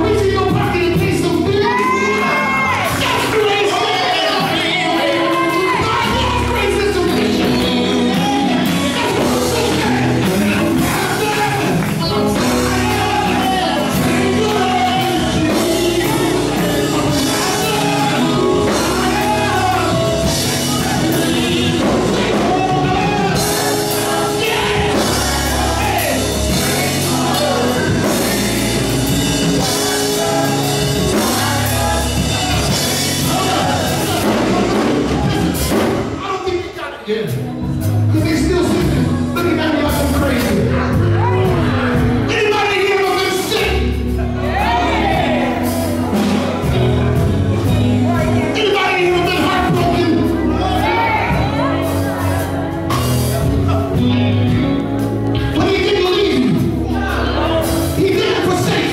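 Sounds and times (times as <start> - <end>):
bass guitar: 0.0 - 36.2, 37.2 - 58.9
backing vocalists: 0.0 - 58.9
drums: 0.0 - 58.9
keyboard: 0.0 - 58.9
male lead singer: 0.0 - 58.9
electric guitar: 49.4 - 58.9.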